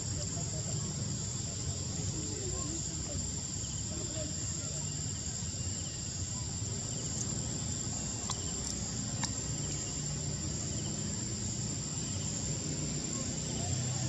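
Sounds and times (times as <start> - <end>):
insects droning: 0.0 - 14.0
faint clicks: 8.2 - 9.4.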